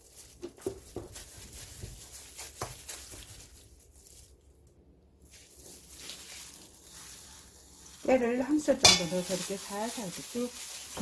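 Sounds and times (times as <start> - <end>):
wooden spoon knocking in bowl: 8.8 - 9.2.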